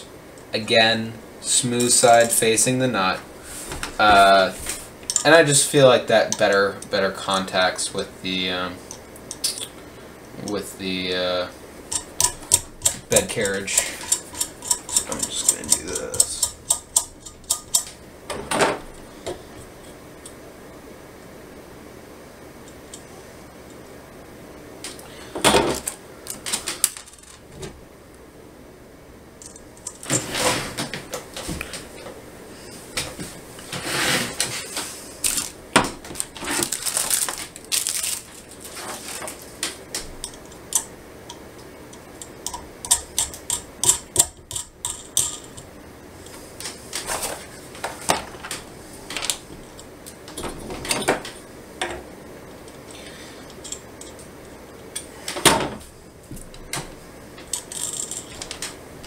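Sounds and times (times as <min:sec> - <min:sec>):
short scrapes: 0:30.1 - 0:30.8, 0:33.7 - 0:35.2.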